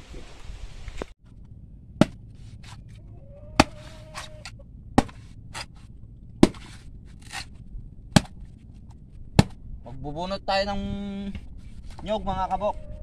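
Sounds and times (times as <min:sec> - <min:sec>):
machete striking coconut shell: 0:02.0 - 0:02.8, 0:03.6 - 0:05.8, 0:06.4 - 0:07.5, 0:08.1 - 0:08.4, 0:09.4 - 0:09.6.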